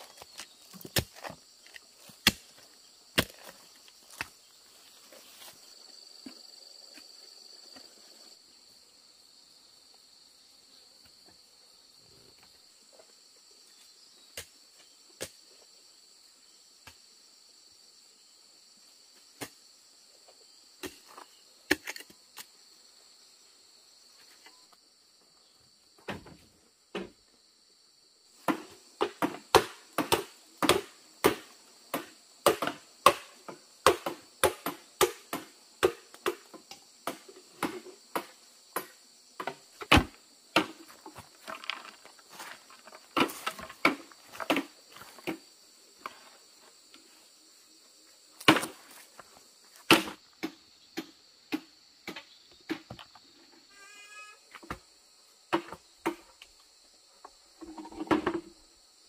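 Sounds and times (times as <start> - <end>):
crickets chirring: 0.0 - 59.0
chopping blows on wood: 28.4 - 40.8, 48.4 - 48.8, 49.9 - 53.0.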